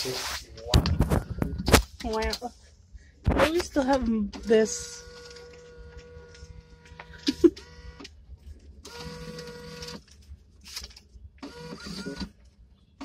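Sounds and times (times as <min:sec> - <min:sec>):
bill acceptor motor whirring: 0:04.3 - 0:08.1, 0:08.8 - 0:10.0, 0:11.4 - 0:12.4.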